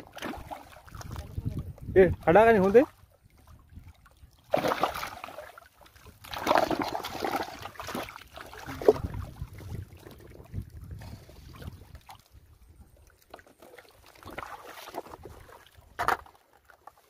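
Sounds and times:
water splashing and sloshing: 0:00.0 - 0:17.0.

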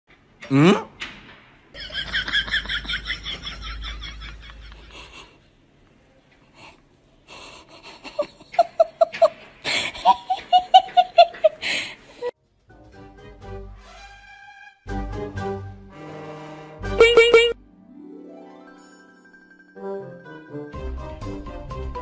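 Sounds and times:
low ha-ha-ha laugh: 0:01.8 - 0:05.4, 0:07.5 - 0:11.6.

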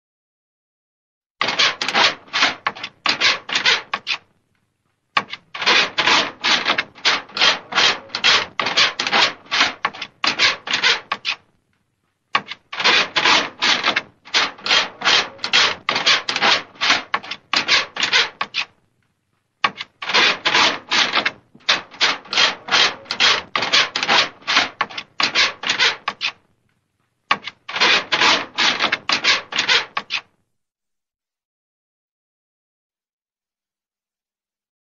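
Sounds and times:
scratching at a door: 0:01.4 - 0:04.3, 0:05.2 - 0:11.5, 0:12.3 - 0:18.8, 0:19.6 - 0:26.4, 0:27.3 - 0:30.4.

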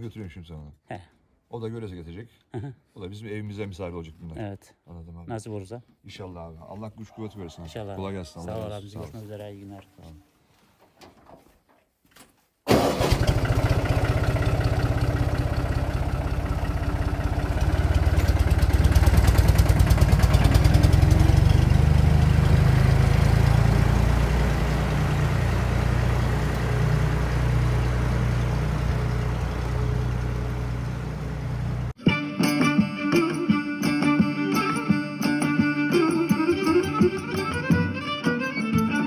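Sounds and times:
tractor engine chugging: 0:12.7 - 0:32.0.

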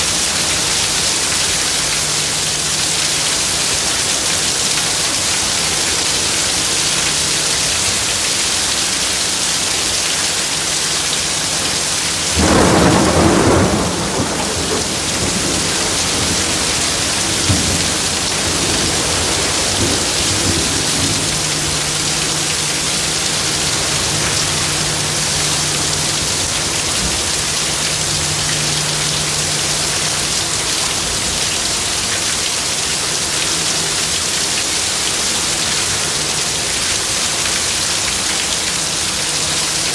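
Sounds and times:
heavy rain pouring: 0:00.0 - 0:39.9
thunder crack: 0:12.3 - 0:29.1
thunder clap and rumble: 0:12.3 - 0:31.9.

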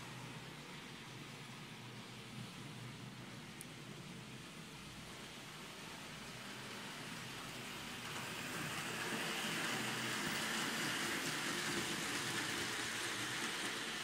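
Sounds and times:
model train motor hum: 0:06.2 - 0:14.0
train wheels rumbling: 0:07.5 - 0:14.0.

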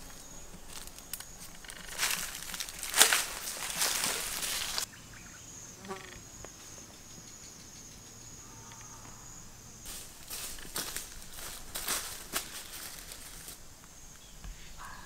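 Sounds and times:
dry leaves crunching underfoot: 0:00.0 - 0:04.9, 0:09.9 - 0:13.6
insects buzzing: 0:00.0 - 0:15.0.

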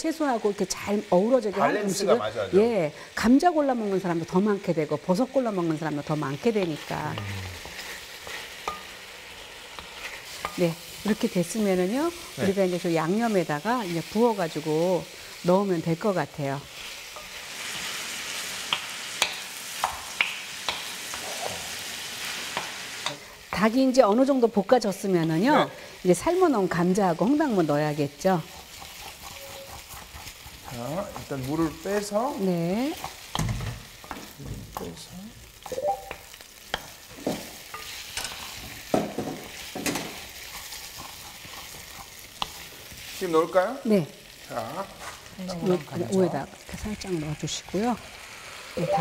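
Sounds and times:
chicken sizzling in oil: 0:00.0 - 0:49.0
spatula scraping pan: 0:06.4 - 0:10.7, 0:28.2 - 0:32.2, 0:36.8 - 0:43.2.

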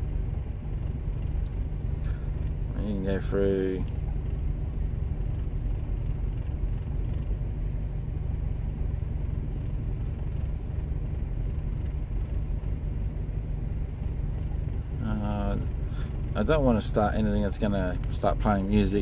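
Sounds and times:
van engine idling: 0:00.0 - 0:19.0.

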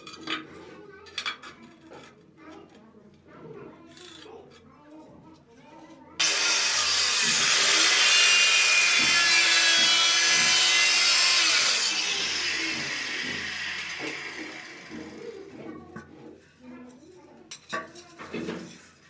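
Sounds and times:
electric tile cutter cutting tile: 0:06.2 - 0:15.5.

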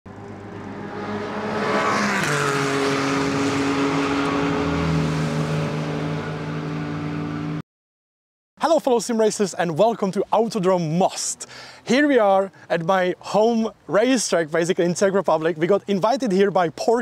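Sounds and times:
race car engine at high revs: 0:00.1 - 0:07.6.

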